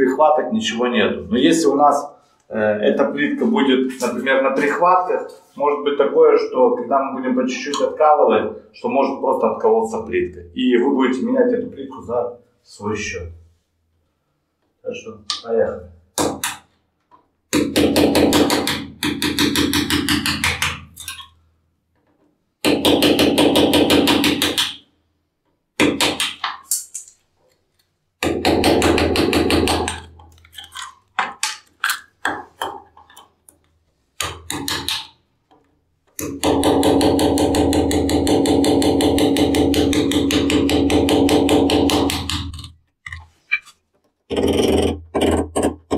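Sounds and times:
hammer tapping chisel on tile: 17.6 - 21.3, 22.7 - 24.8, 34.2 - 35.2, 36.2 - 43.2.

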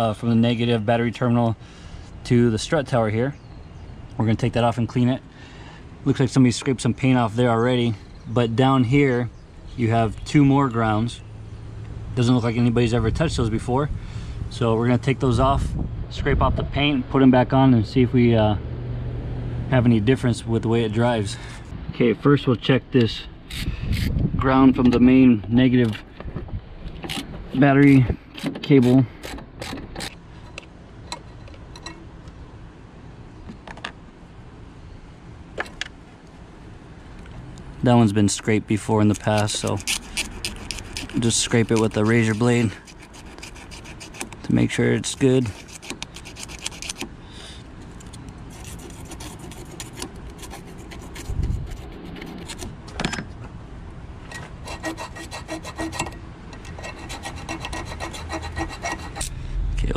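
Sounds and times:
razor blade scraping metal: 39.0 - 47.1, 48.5 - 52.7, 54.3 - 59.4.

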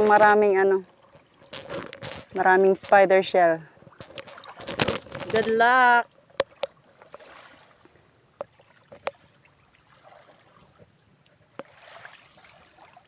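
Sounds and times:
seawater sloshing around wader: 0.0 - 13.0.

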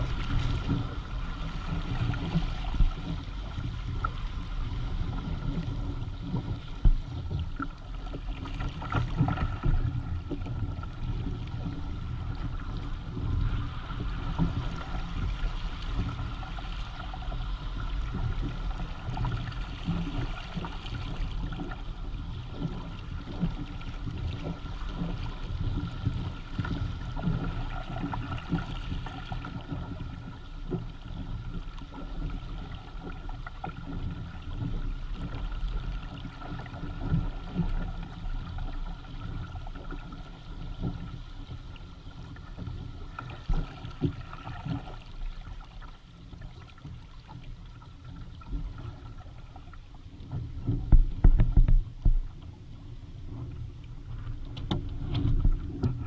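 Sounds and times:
water splashing along hull: 0.0 - 56.0
wind rumble on microphone: 0.0 - 56.0.

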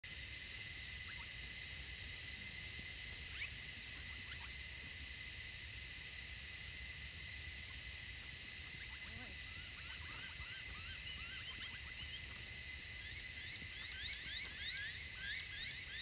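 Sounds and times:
high-pitched insect drone: 0.0 - 16.0
faint bird chirps: 1.0 - 1.4, 3.3 - 4.6, 8.6 - 16.0.

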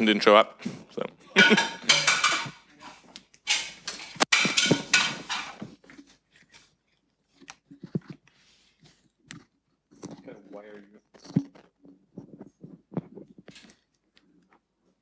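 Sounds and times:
microphone handling rustling: 11.1 - 13.7.

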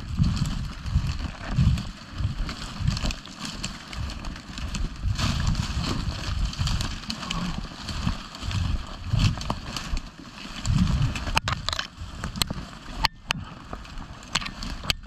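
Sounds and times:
footsteps in snow: 0.0 - 11.4
reed stalks brushing and crackling: 0.0 - 15.0.

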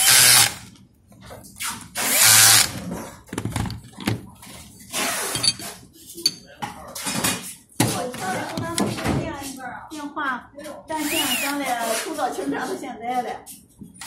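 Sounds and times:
cordless drill driving a bit: 0.0 - 0.6, 2.0 - 2.7
metal parts knocking and clattering: 5.2 - 6.4.

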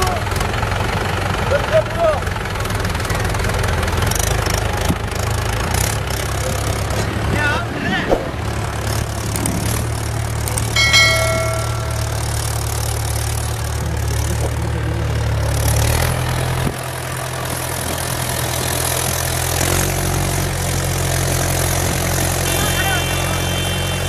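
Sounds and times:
tractor diesel engine running: 0.0 - 7.7, 8.4 - 24.0
bell-like chime: 10.8 - 12.9.

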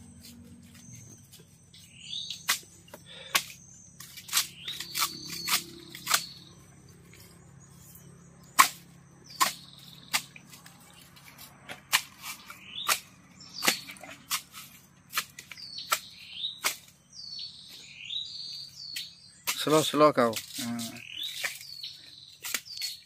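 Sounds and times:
birds chirping: 0.0 - 23.0
machete chopping palm fronds: 2.1 - 7.3, 8.4 - 17.1, 18.9 - 23.0.

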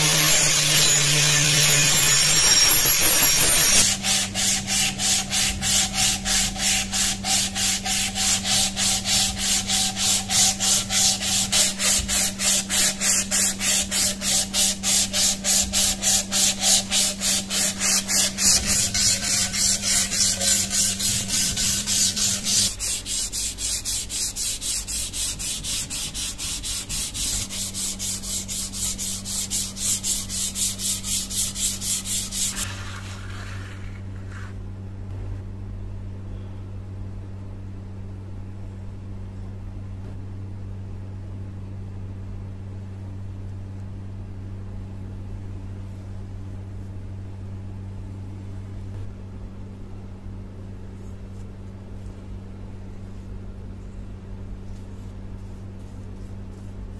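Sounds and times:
sandpaper rasping on wood: 0.0 - 34.5.

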